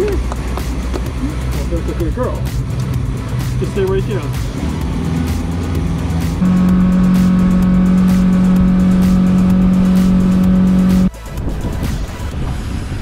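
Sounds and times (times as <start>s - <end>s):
outboard engine drone: 4.4s - 11.3s
rush of wind and water: 11.1s - 13.0s.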